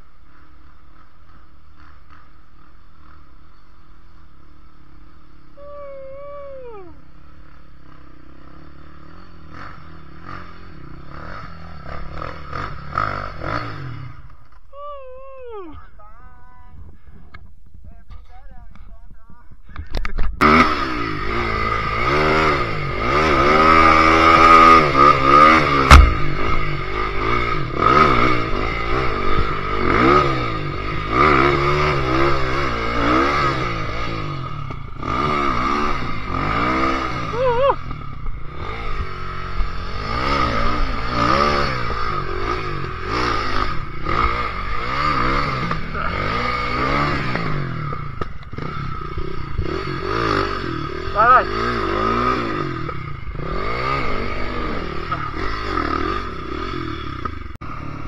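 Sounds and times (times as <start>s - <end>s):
motorcycle engine revving: 0.0s - 17.4s, 19.7s - 58.0s
motorcycle clattering: 25.6s - 27.2s
sharp knock: 25.8s - 26.6s.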